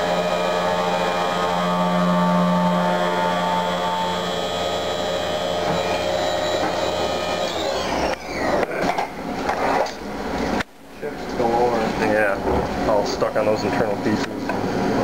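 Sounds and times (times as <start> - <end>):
mill spindle whining: 0.0 - 9.8.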